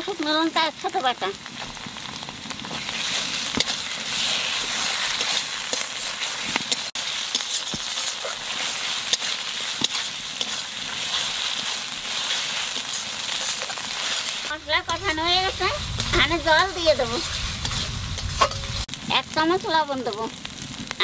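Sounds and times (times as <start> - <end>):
spice paste sizzling in oil: 0.0 - 21.0
spatula scraping a pan: 2.6 - 18.9.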